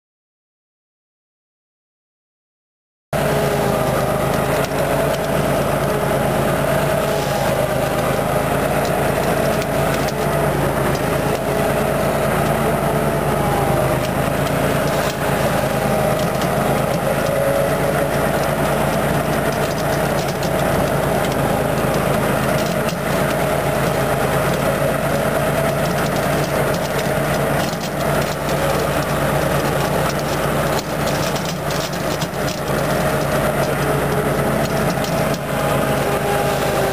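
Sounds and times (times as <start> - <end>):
riding mower engine running: 3.1 - 36.9.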